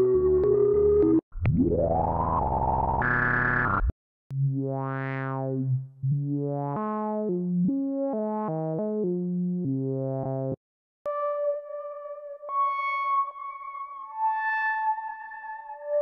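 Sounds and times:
synth notes stepping in pitch: 0.0 - 5.0.

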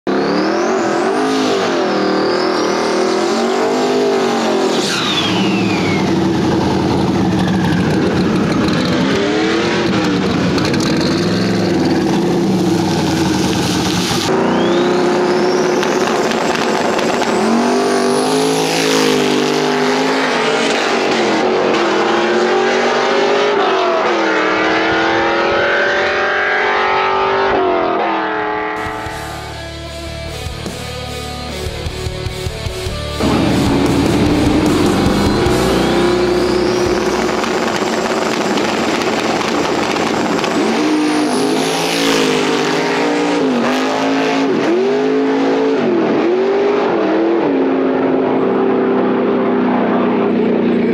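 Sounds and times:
racing car engines revving: 0.0 - 29.8, 32.9 - 50.9
high whine rising in pitch: 24.1 - 29.9, 33.2 - 43.9.

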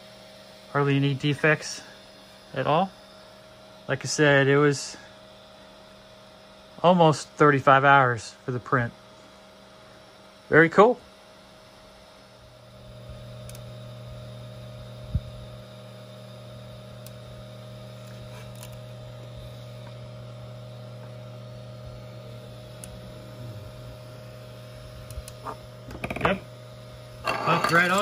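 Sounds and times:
electrical hum with whine: 0.0 - 28.0.

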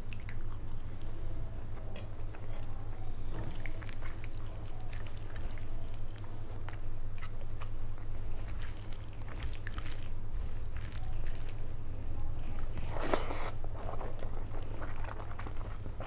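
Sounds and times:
steady low hum: 0.0 - 16.0
chewing: 3.3 - 11.7, 12.5 - 16.0.

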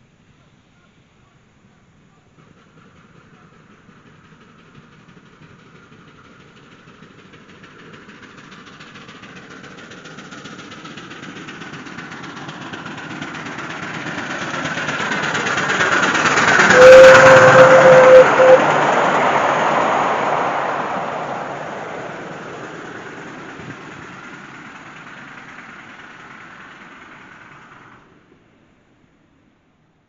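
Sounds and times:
train wheels on rails: 1.3 - 30.0
steam locomotive running: 1.4 - 29.2
steady held note: 16.5 - 19.2.

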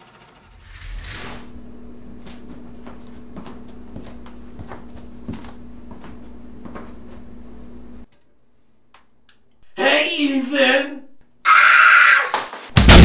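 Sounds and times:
brief whoosh: 0.3 - 1.6
steady low hum: 0.4 - 8.1.

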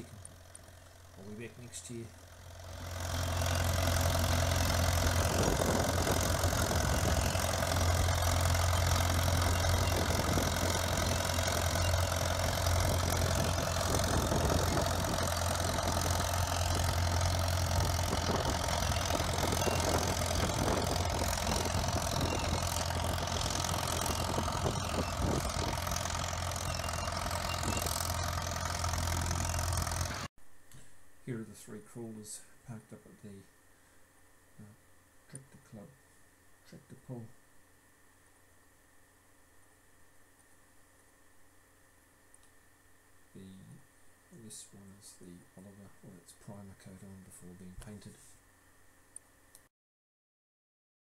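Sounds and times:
tractor engine droning under load: 0.0 - 30.3.

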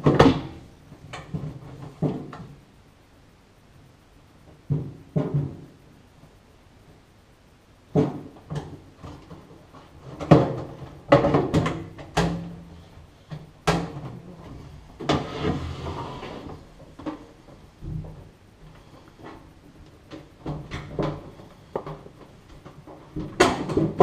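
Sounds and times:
metal cover scraping slide: 15.1 - 16.5.

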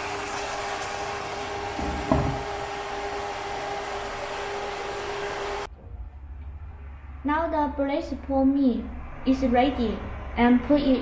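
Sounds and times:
pork simmering in a wok: 0.0 - 5.6.

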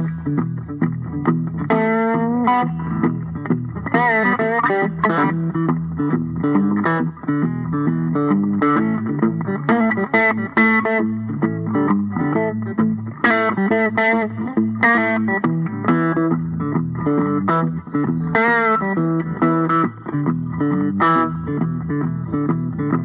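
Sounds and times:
plucked string instrument music: 0.0 - 23.0.

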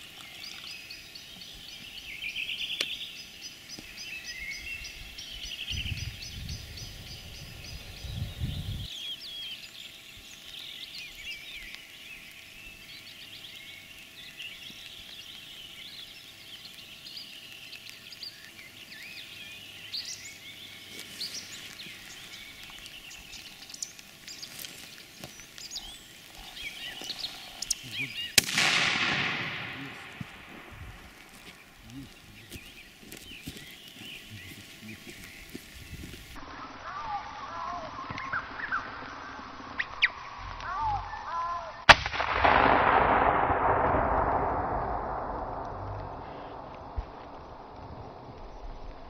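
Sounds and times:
songbirds chirping and singing: 0.0 - 41.9
low rumble: 26.4 - 32.9, 42.1 - 49.0.

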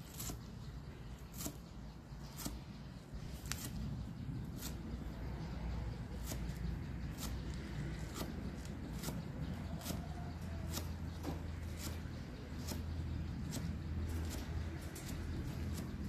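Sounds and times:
knife chopping on wooden board: 8.0 - 9.2, 9.8 - 12.0, 12.6 - 16.0.

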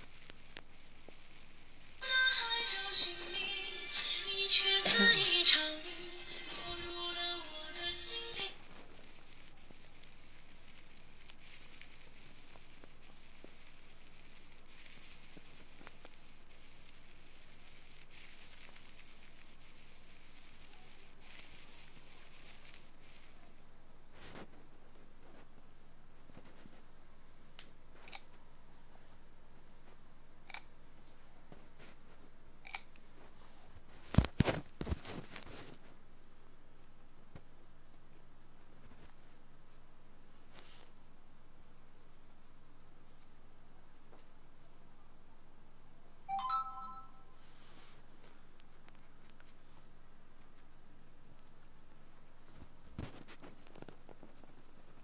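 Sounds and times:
ear pick scratching: 0.0 - 23.5
faint hiss: 0.0 - 55.0.

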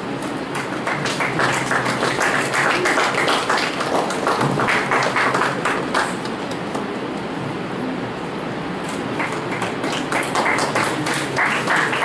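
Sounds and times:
audience applauding: 0.5 - 6.5, 9.1 - 12.0.

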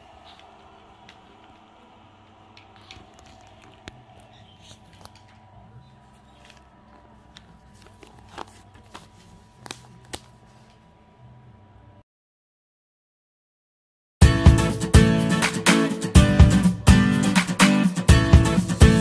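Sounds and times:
paper crinkling on carpet: 2.6 - 10.9.

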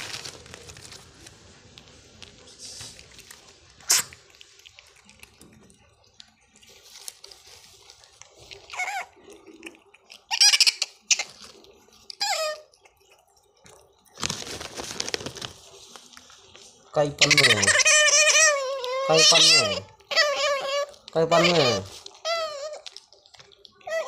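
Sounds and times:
rustling: 0.0 - 5.6, 6.2 - 9.1, 14.0 - 23.7
otter squeaking: 17.0 - 24.0.

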